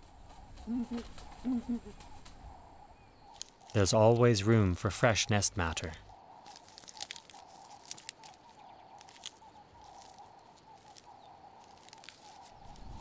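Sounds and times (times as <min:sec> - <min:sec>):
dry leaves rustling: 0:06.3 - 0:13.0.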